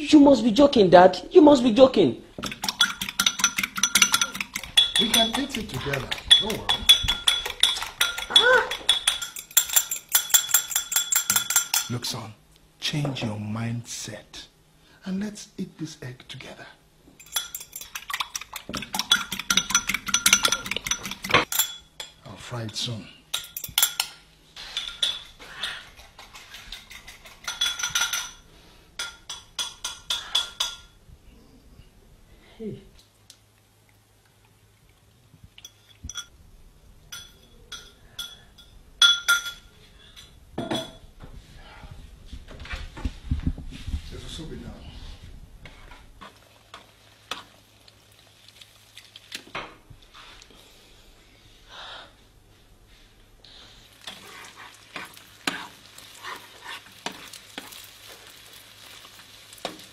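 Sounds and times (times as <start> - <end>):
metal utensils and pans clinking: 2.4 - 12.0, 17.2 - 30.9, 37.1 - 41.0
egg sizzling in a pan: 46.2 - 50.6, 53.7 - 59.9.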